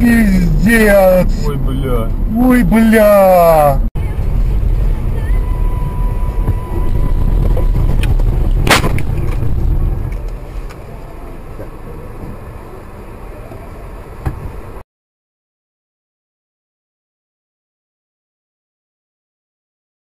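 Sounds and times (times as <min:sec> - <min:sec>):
vehicle low rumble: 0:00.0 - 0:14.8
loud bang: 0:06.8 - 0:10.1.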